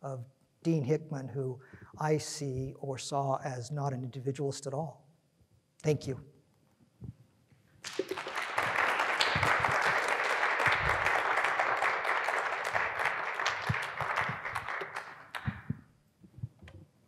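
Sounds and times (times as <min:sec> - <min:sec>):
small audience applauding: 0:07.8 - 0:15.8.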